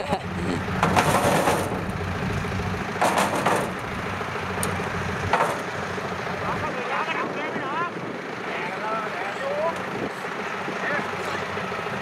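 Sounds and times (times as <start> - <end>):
harvester engine idling: 0.0 - 12.0
metal ramp rails clanking: 0.8 - 1.9, 3.0 - 3.8, 5.3 - 5.7.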